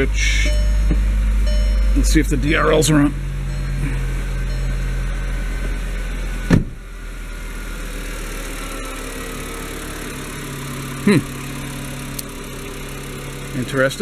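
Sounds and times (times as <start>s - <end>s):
car engine idling: 0.0s - 14.0s
car door shutting: 0.5s - 2.0s, 6.4s - 6.8s
short thump: 6.5s - 6.8s.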